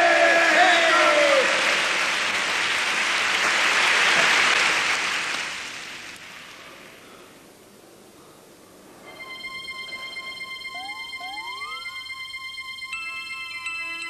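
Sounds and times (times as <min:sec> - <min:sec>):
crowd applauding: 0:00.0 - 0:06.4.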